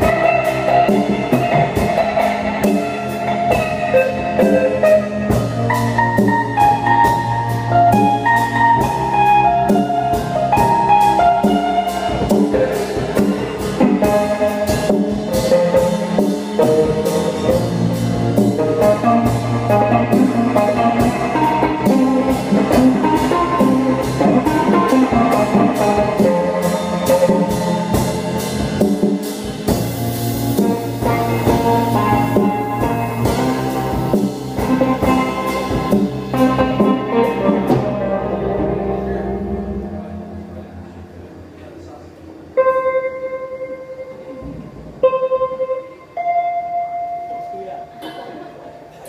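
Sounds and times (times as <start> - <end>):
steady drum beat: 0.0 - 39.1
keyboard chords and melody: 0.0 - 48.5.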